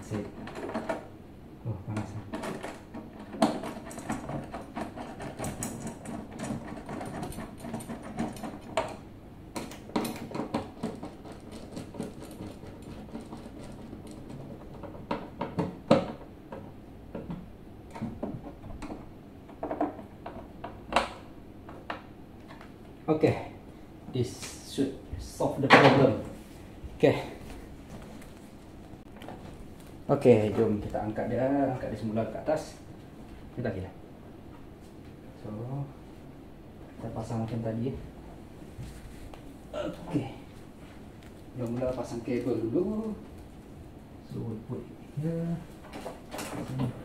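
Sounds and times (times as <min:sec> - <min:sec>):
screws and metal rattling: 0:02.3 - 0:09.0, 0:09.9 - 0:15.3.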